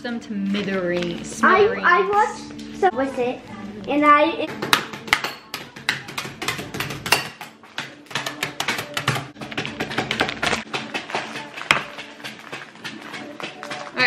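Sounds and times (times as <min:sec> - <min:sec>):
spoons banging on cookies in bag: 0:04.5 - 0:14.0.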